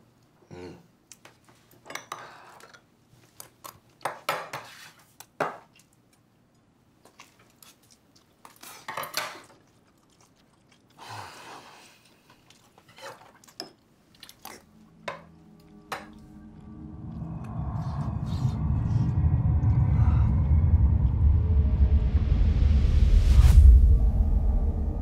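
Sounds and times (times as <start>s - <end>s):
quiet chewing: 5.7s - 18.4s.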